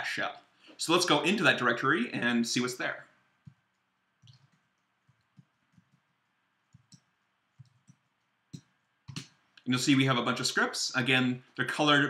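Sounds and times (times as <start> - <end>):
computer keys typing: 3.7 - 9.2.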